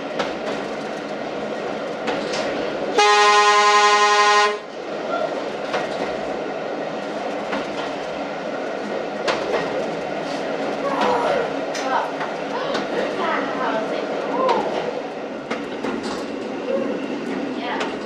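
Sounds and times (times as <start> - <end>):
wheels clicking over rail joints: 0.0 - 2.8, 14.2 - 16.6
train running noise: 0.0 - 18.0
train horn blast: 2.9 - 4.7.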